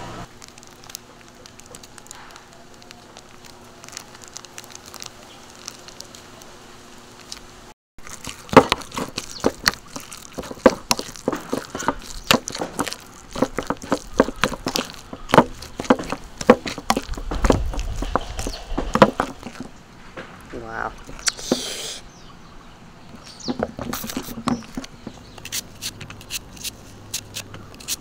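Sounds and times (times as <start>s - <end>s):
spoon mashing food in bowl: 8.0s - 19.7s, 23.2s - 28.0s.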